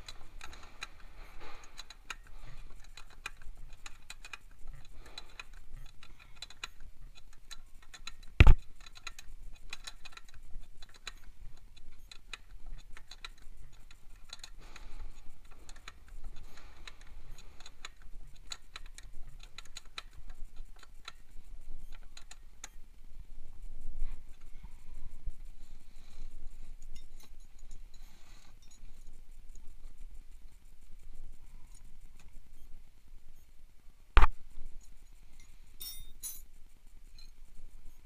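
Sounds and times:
wrench clicking on metal: 0:00.0 - 0:21.2, 0:35.8 - 0:36.5.

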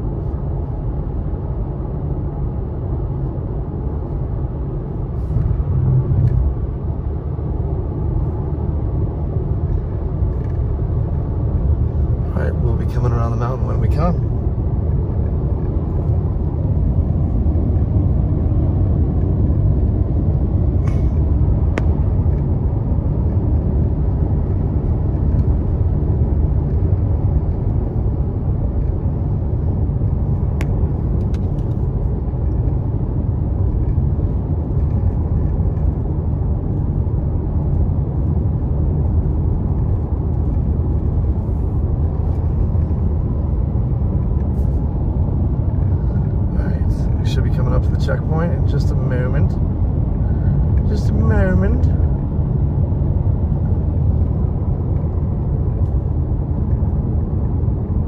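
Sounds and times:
car engine: 0:00.0 - 0:58.0
tyre and road noise: 0:00.0 - 0:58.0.

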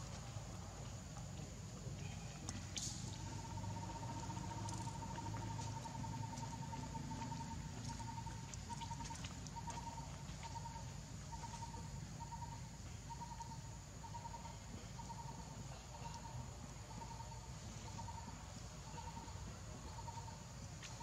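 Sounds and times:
low steady rumble: 0:00.0 - 0:21.0
small animal pulsing call: 0:02.6 - 0:16.3.

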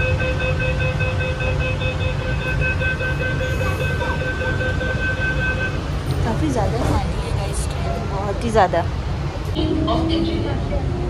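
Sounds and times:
train door warning tone: 0:00.0 - 0:06.9
low rumble of train carriage: 0:00.0 - 0:11.0.

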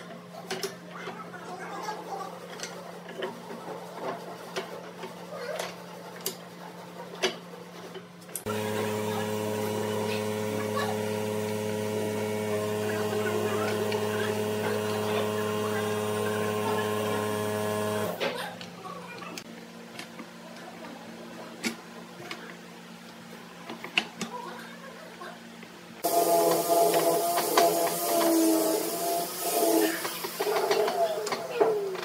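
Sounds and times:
machine motor humming: 0:08.4 - 0:19.6, 0:26.0 - 0:32.0.

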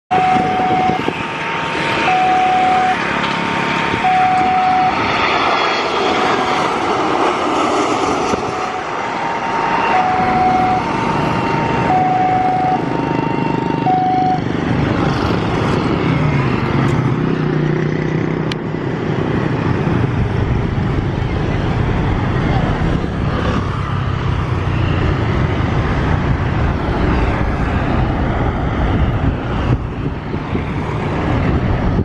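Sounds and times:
two-tone alternating tone: 0:00.1 - 0:01.1, 0:02.1 - 0:03.1, 0:04.0 - 0:05.0, 0:08.4 - 0:09.0, 0:09.8 - 0:14.5
motor rising and falling in pitch: 0:00.1 - 0:07.1, 0:08.0 - 0:17.1
jet engine noise: 0:00.1 - 0:32.0
motorbikes passing: 0:00.1 - 0:32.0
road traffic passing: 0:00.1 - 0:32.0.

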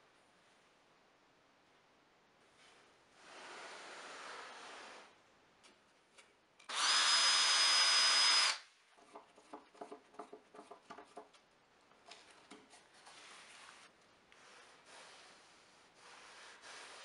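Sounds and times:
cordless drill whining: 0:06.7 - 0:08.6.

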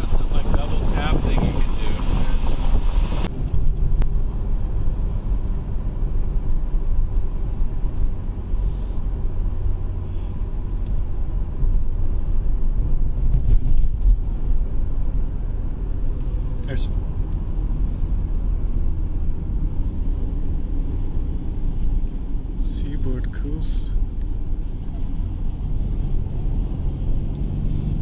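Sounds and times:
wind noise on microphone: 0:00.0 - 0:08.5, 0:11.4 - 0:22.3
car driving on highway: 0:00.0 - 0:28.0.

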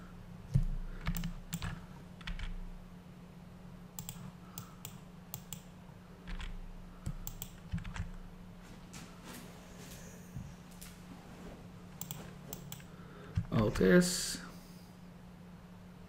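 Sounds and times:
faint low hum: 0:00.0 - 0:16.0
keyboard keys clicking: 0:00.5 - 0:02.6, 0:04.0 - 0:05.7, 0:06.3 - 0:08.2
mouse buttons clicking: 0:04.0 - 0:05.7, 0:06.3 - 0:08.0.

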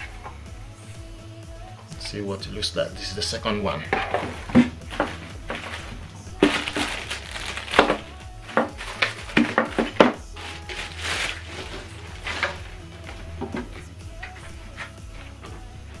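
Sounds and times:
background music: 0:00.0 - 0:16.0
items knocking on table: 0:03.9 - 0:10.2
plastic bags crinkling: 0:04.0 - 0:15.3.

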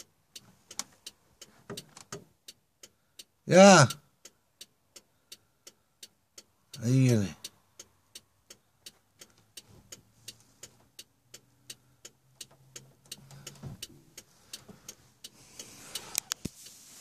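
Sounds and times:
flasher relay ticking: 0:00.0 - 0:16.8.

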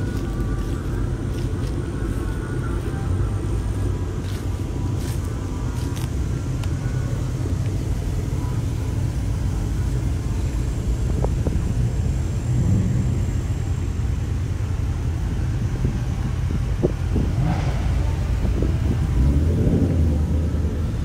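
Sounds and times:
car engines rumbling: 0:00.0 - 0:21.0.

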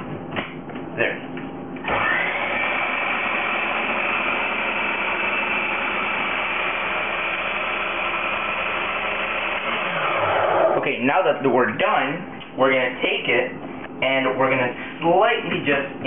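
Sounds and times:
food processor motor whirring: 0:01.8 - 0:10.8.

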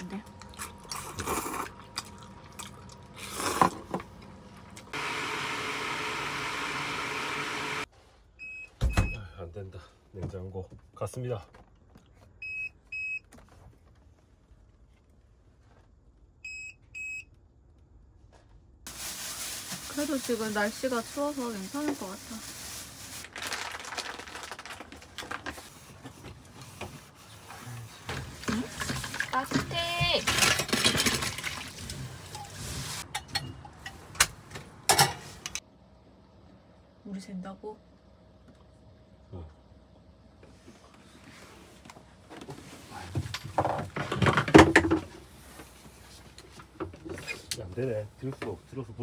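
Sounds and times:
rustling of items handled: 0:18.3 - 0:33.0.

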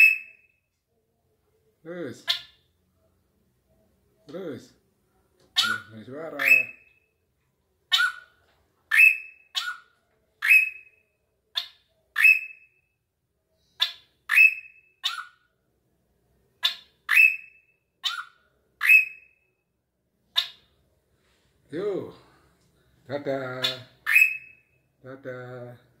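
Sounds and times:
bird calling in sharp notes: 0:05.6 - 0:07.0, 0:08.9 - 0:11.0, 0:11.6 - 0:12.8, 0:13.8 - 0:15.4, 0:16.6 - 0:19.4, 0:23.6 - 0:24.8.

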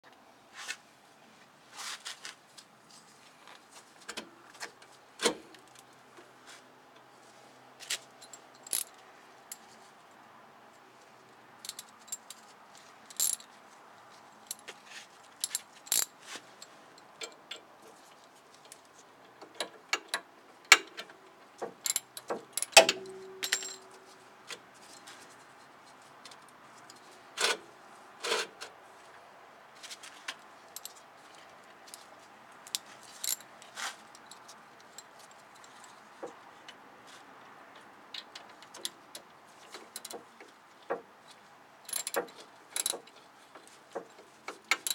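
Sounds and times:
metal tools clinking: 0:21.9 - 0:24.0
ringing metal clink: 0:22.7 - 0:24.0.

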